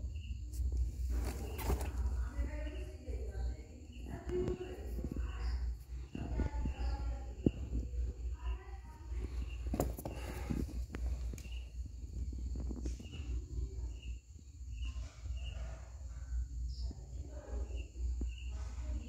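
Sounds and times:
steady low rumble: 0.0 - 14.6
faint voices: 1.1 - 11.7.

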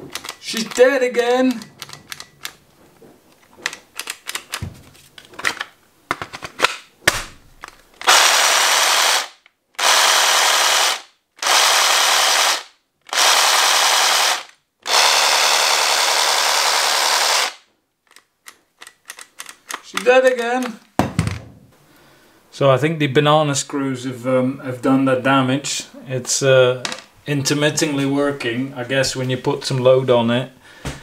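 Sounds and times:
reciprocating saw motor running: 8.1 - 17.6.

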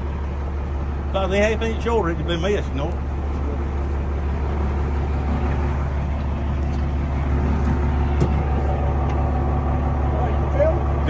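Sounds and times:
truck engine droning: 0.0 - 11.0.

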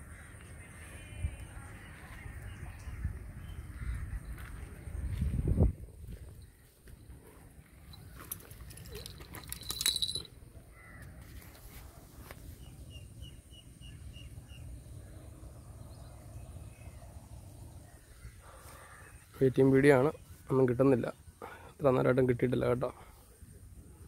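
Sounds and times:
bird chirping: 12.5 - 21.6.

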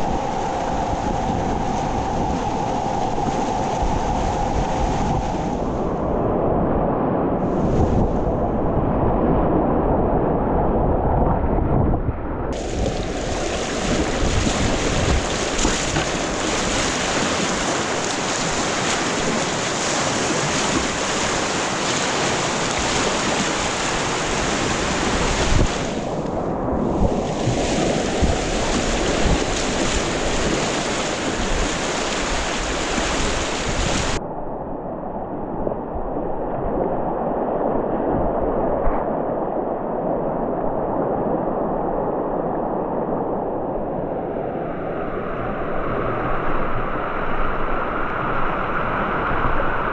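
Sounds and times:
river rapids rushing: 12.6 - 26.3, 27.2 - 34.2.

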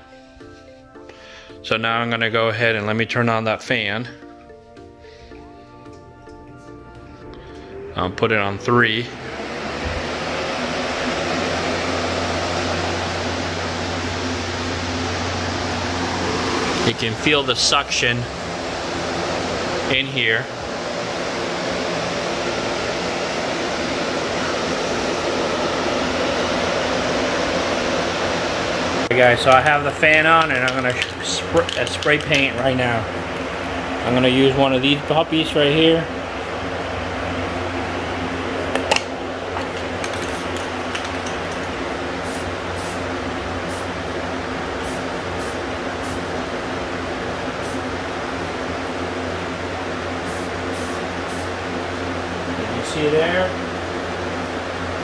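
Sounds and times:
box fan air rush with hum: 3.7 - 55.0
spray can cap clicks: 38.8 - 41.7
spray paint hissing: 40.0 - 44.0, 44.8 - 46.3, 47.5 - 47.9, 50.2 - 51.6.

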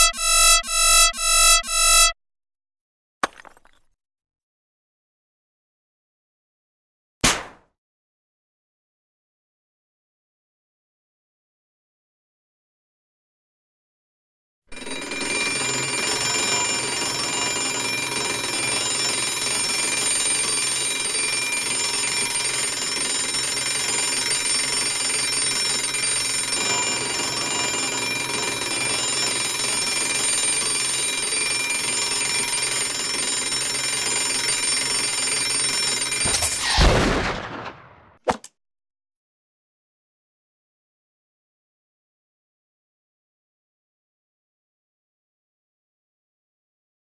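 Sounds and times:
alarm clock ringing: 0.0 - 2.2, 14.8 - 36.6
loud bang: 36.3 - 38.2.

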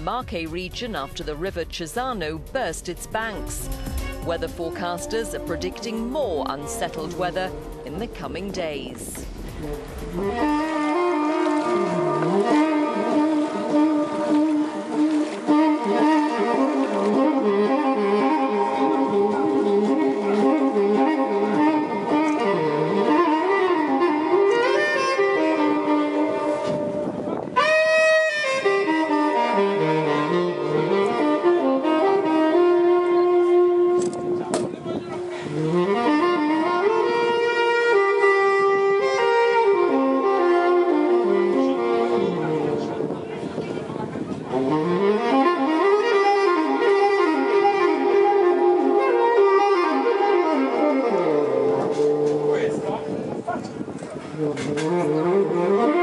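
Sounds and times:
backing music: 0.0 - 34.8
saxophone melody: 0.0 - 53.6, 54.2 - 56.0.

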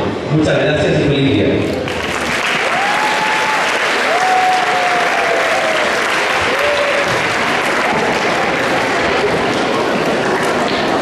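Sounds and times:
audience applauding: 1.9 - 11.0
long calls from audience: 2.6 - 7.3.

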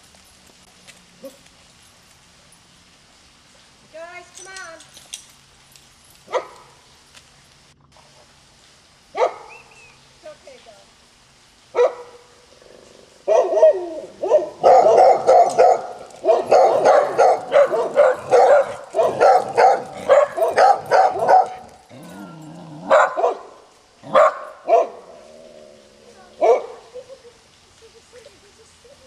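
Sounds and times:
dogs barking: 6.3 - 6.8, 9.2 - 9.6, 11.7 - 12.3, 13.2 - 22.1, 22.8 - 25.3, 26.4 - 26.9.

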